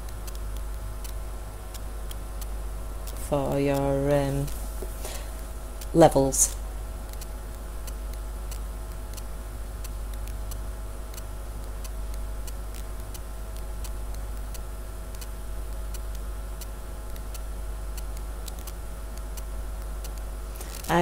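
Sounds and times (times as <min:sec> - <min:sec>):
faint regular ticking: 0:00.0 - 0:21.0
steady low hum: 0:00.0 - 0:21.0.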